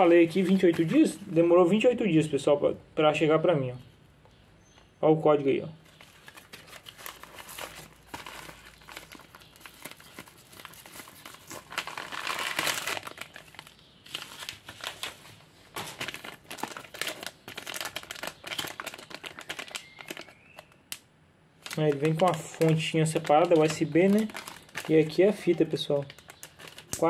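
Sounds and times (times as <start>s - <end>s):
plastic packaging crinkling and tearing: 0.0s - 1.4s, 5.8s - 21.0s, 21.6s - 27.0s.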